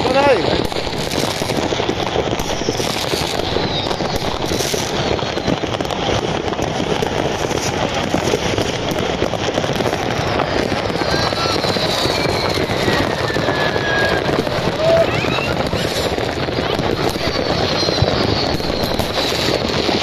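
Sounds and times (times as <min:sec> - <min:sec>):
fireworks crackling and popping: 0:00.0 - 0:20.0
fireworks whistles falling: 0:00.0 - 0:20.0.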